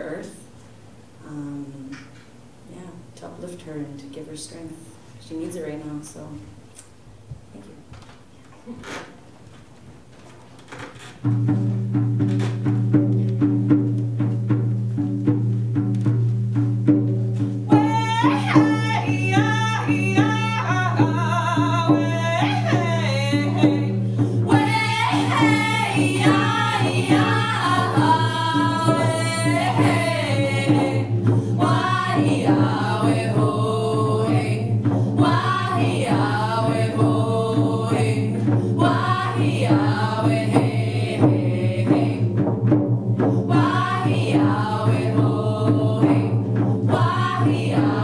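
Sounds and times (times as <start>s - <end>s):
low steady hum: 0.0s - 10.4s
frame drums beating: 8.8s - 48.0s
women's group singing: 17.7s - 42.6s, 43.3s - 48.0s.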